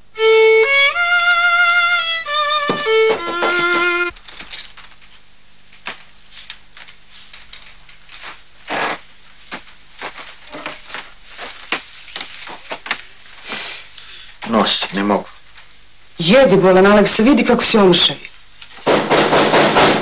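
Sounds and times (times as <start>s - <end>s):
solo violin music: 0.0s - 4.2s
faint steady hum: 0.0s - 19.6s.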